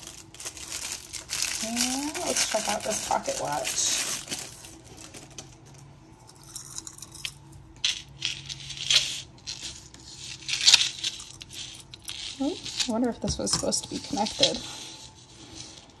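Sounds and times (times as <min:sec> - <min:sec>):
metal chain jingling on countertop: 0:06.3 - 0:09.9.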